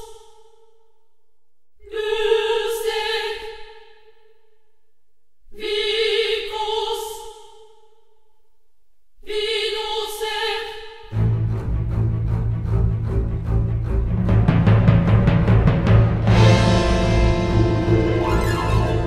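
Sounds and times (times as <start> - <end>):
choir singing long notes: 1.8 - 3.7, 15.8 - 19.0.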